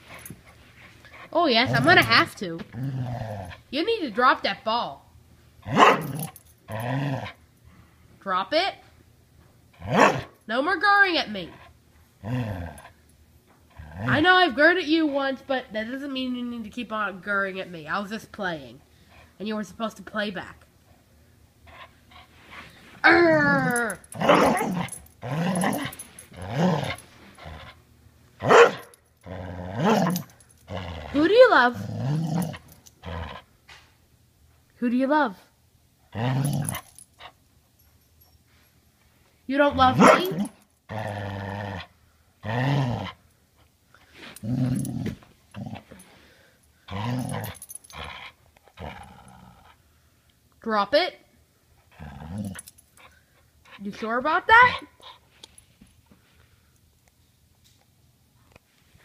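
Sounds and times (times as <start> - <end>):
dog growling and grumbling: 1.1 - 3.7, 5.6 - 7.4, 12.2 - 13.0, 13.7 - 14.5, 23.1 - 27.8, 28.4 - 33.5, 36.1 - 37.0, 39.7 - 43.2, 44.3 - 46.1, 46.9 - 49.8, 51.8 - 52.8.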